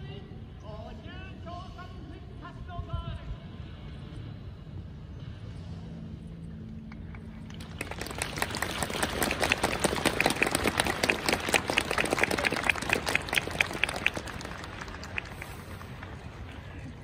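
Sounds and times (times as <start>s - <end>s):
crowd applauding: 7.1s - 17.0s.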